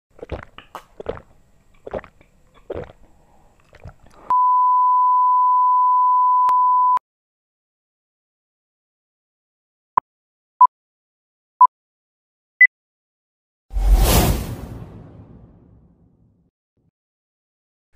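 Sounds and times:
gulps of drink swallowed: 0:00.1 - 0:04.3
steady test-tone beep: 0:04.3 - 0:07.0.

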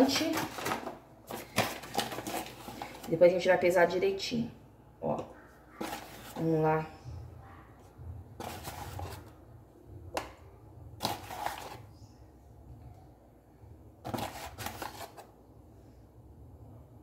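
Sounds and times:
paper bag rustling: 0:00.0 - 0:03.2, 0:05.8 - 0:06.5, 0:08.4 - 0:09.3, 0:11.0 - 0:11.8, 0:14.1 - 0:15.3
spoon scraping flour: 0:08.4 - 0:09.3, 0:11.0 - 0:11.8.

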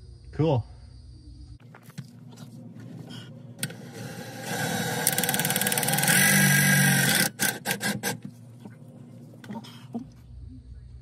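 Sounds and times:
power drill driving screw into metal: 0:04.4 - 0:08.2.

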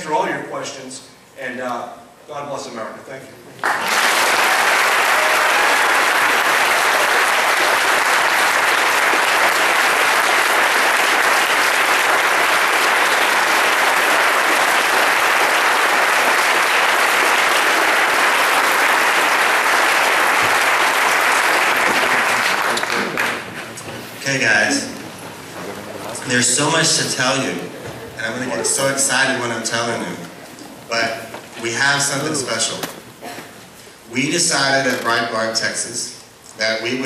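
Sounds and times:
audience applauding: 0:03.6 - 0:23.6.

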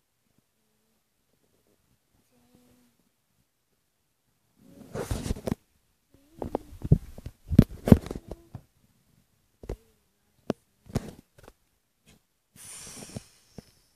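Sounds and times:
short hiss: 0:12.1 - 0:13.9.

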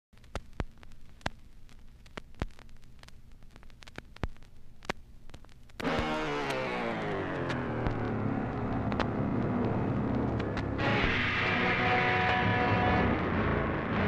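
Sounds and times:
sharp clicks and crackles: 0:00.2 - 0:11.2
low steady hum: 0:00.2 - 0:14.0
loud music: 0:05.8 - 0:14.0.

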